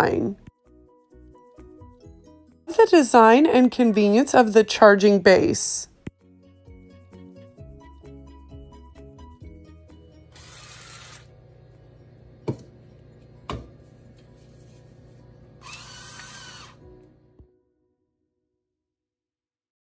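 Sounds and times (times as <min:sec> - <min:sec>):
background music: 0:00.0 - 0:14.1, 0:16.6 - 0:18.1
electric grinder motor whirring: 0:10.2 - 0:12.4, 0:15.1 - 0:17.2.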